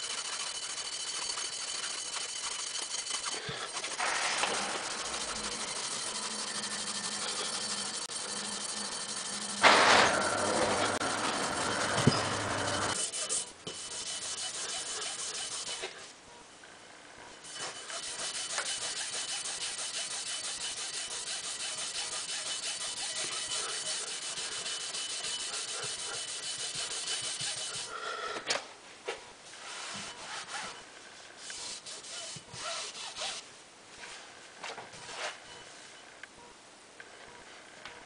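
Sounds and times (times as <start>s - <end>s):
rubbing and wiping: 0.0s - 9.8s, 10.5s - 16.1s, 17.5s - 27.9s, 29.5s - 30.8s, 31.4s - 33.4s
scrubbing rusty metal barrel: 0.0s - 16.0s, 17.5s - 27.9s.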